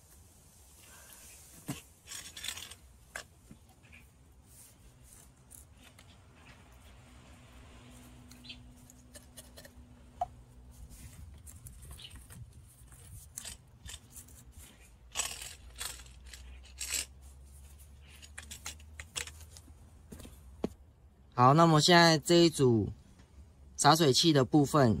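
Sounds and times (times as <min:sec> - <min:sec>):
short scraping rasps: 0:01.2 - 0:03.3, 0:10.9 - 0:19.7.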